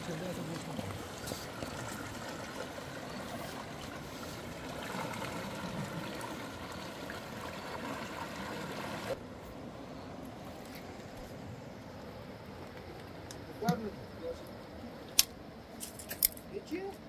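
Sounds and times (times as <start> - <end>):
river water rushing: 0.0 - 12.5.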